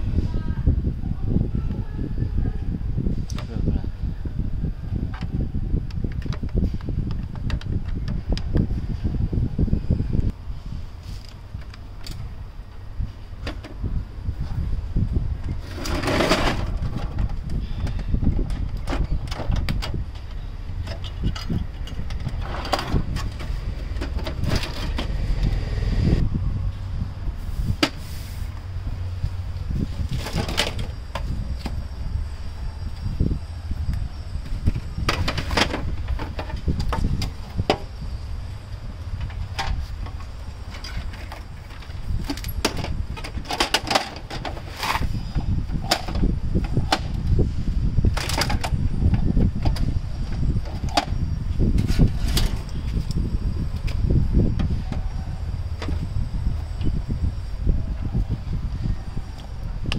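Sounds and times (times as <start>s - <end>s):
steady low rumble: 0.0s - 59.9s.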